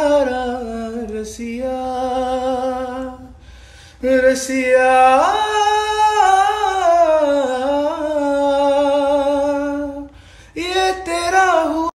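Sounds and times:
man singing unaccompanied: 0.0s - 3.4s, 4.0s - 12.0s.

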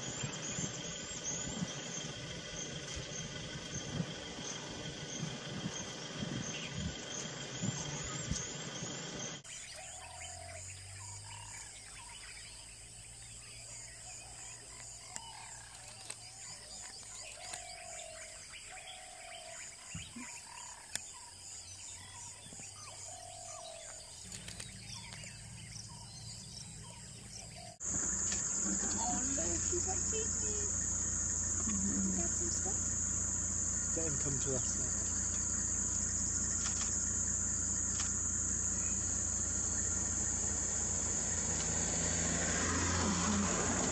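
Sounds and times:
loud high insect drone: 0.0s - 15.6s, 22.9s - 43.9s
insects chirring: 0.0s - 43.9s
vehicle engines idling: 0.0s - 43.9s.

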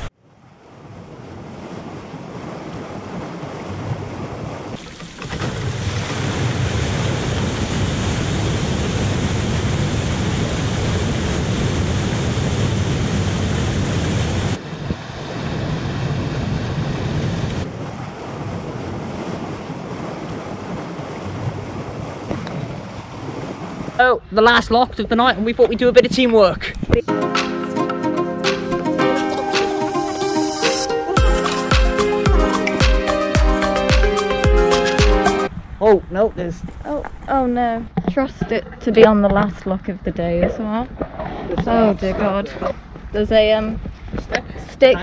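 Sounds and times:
water rushing into lock: 0.0s - 26.4s.

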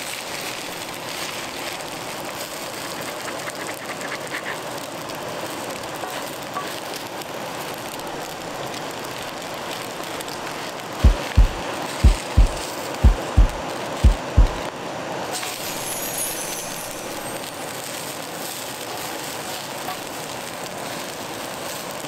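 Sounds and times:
rushing water: 0.0s - 22.0s
kick drum beat: 11.0s - 14.6s.

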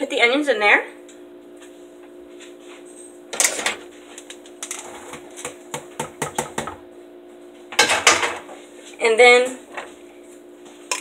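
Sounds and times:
loud kitchen clatter: 7.8s - 8.4s.

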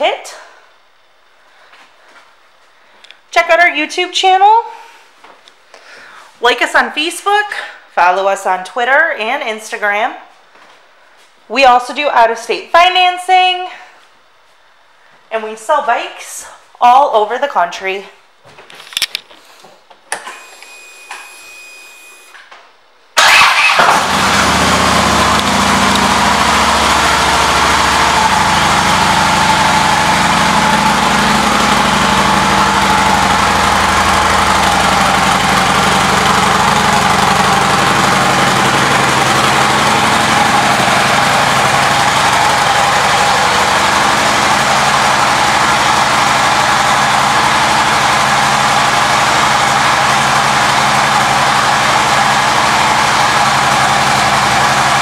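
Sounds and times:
motorcycle engine cranking and idling: 23.2s - 55.0s.

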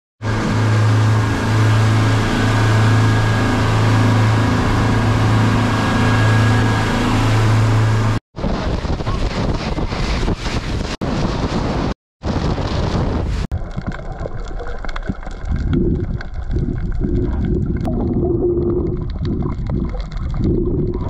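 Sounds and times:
boat engine humming: 0.2s - 8.2s
wind buffeting microphone: 8.4s - 13.5s, 15.4s - 21.0s.

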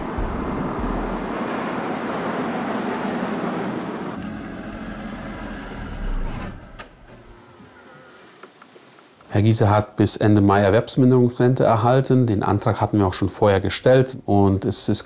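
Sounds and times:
car driving past: 0.0s - 8.2s.

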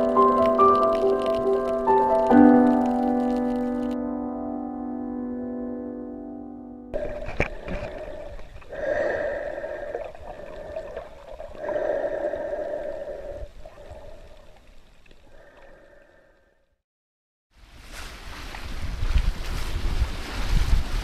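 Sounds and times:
breathing through a snorkel: 7.0s - 14.6s, 15.2s - 16.7s
water gurgling: 7.0s - 16.3s.

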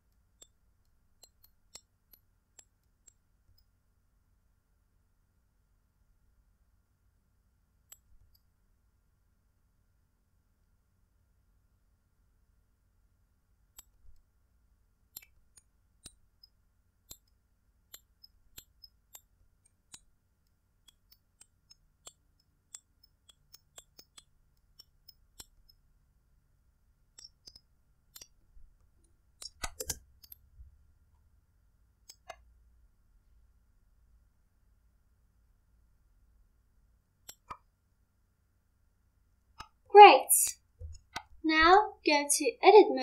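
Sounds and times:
faint mouse clicks: 0.0s - 3.8s, 7.8s - 8.5s, 13.7s - 14.3s, 15.1s - 25.8s, 27.1s - 30.8s, 32.0s - 32.5s, 37.2s - 37.7s.

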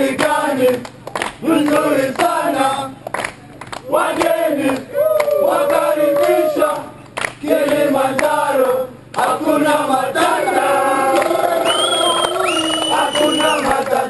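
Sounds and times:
group singing together: 0.0s - 3.1s, 3.8s - 14.0s
sharp clap: 0.2s - 2.4s, 3.0s - 5.3s, 7.0s - 8.3s, 11.2s - 14.0s.

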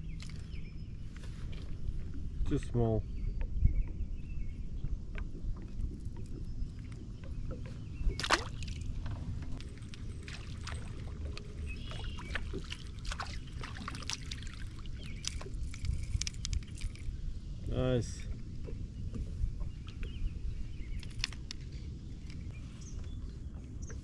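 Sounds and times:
water lapping against kayak hull: 3.1s - 21.8s
small splashes and ticks: 5.1s - 17.2s
fish splashing: 9.6s - 15.6s.

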